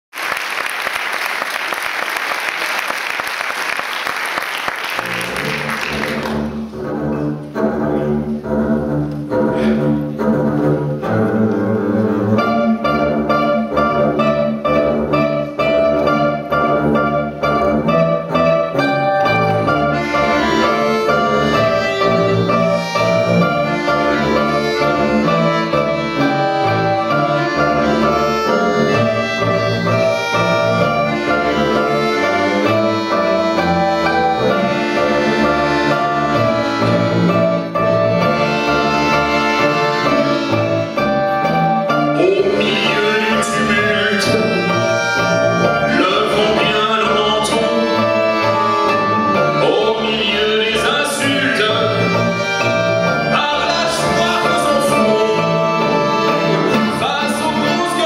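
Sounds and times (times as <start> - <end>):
melody instruments: 12.3 - 58.0.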